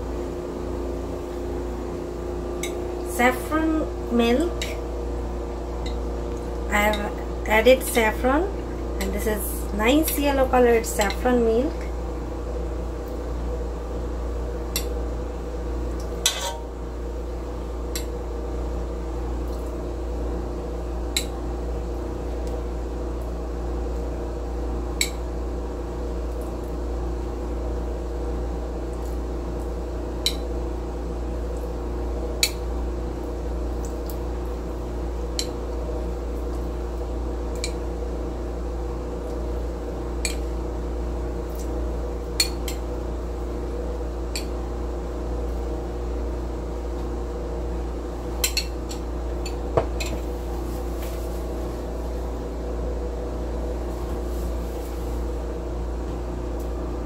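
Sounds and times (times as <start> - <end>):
steady hum: 0.0 - 57.0
metal spoon clinking against bowl: 16.2 - 16.6.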